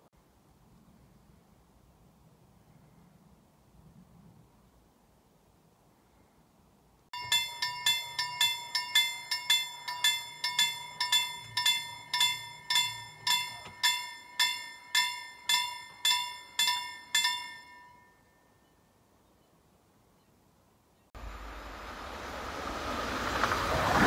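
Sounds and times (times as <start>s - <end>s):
level crossing warning bell: 7.2s - 18.8s.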